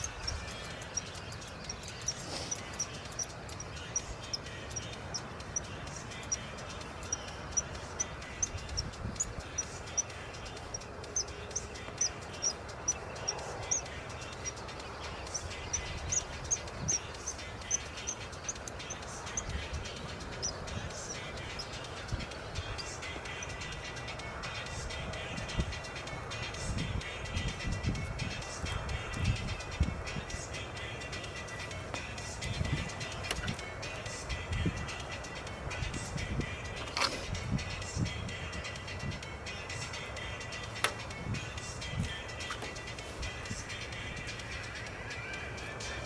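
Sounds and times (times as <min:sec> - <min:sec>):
small bird calling: 0:00.0 - 0:27.2
steady outdoor hiss: 0:00.0 - 0:46.0.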